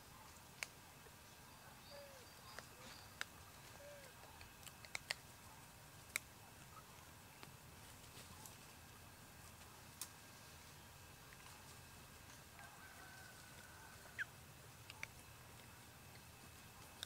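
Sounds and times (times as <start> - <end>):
sharp clicks: 4.4 - 5.2.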